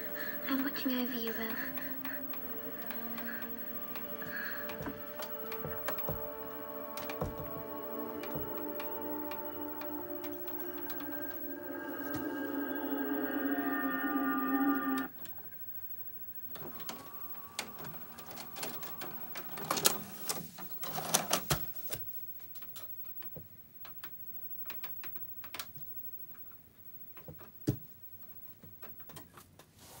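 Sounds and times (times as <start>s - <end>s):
faint motor whine: 0.0s - 20.8s.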